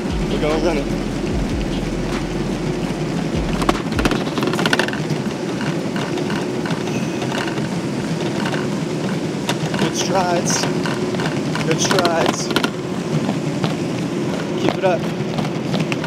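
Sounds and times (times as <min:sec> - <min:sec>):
treadmill belt and motor whirring: 0:02.6 - 0:16.0.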